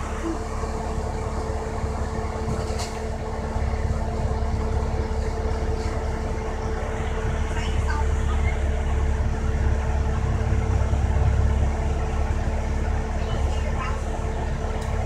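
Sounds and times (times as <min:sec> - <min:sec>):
bus engine drone and rumble: 0:00.0 - 0:15.0
constant hum: 0:00.0 - 0:15.0.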